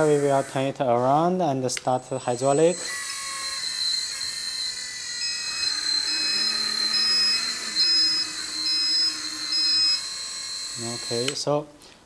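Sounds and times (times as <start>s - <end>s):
small electric motors whining: 0.0s - 0.7s, 1.8s - 11.5s.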